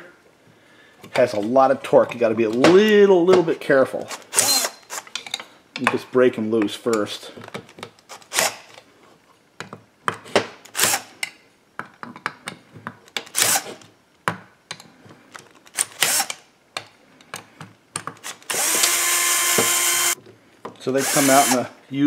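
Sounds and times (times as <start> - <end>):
cordless drill running: 4.3 - 4.9, 16.0 - 16.3, 18.5 - 20.2, 21.0 - 21.7.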